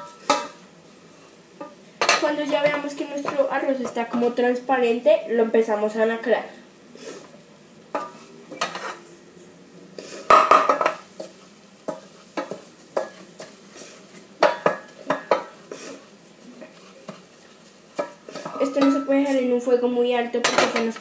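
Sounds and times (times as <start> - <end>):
wooden spoon scraping pot: 8.0 - 9.1, 10.1 - 19.4.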